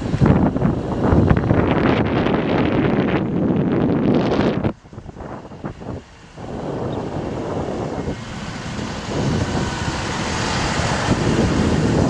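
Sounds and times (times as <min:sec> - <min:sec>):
truck engine running: 0:00.0 - 0:12.0
wind buffeting microphone: 0:00.0 - 0:12.0.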